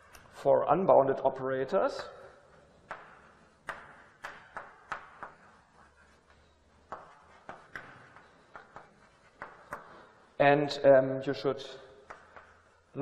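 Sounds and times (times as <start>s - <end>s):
chalk tapping on blackboard: 2.5s - 10.3s, 12.0s - 13.0s.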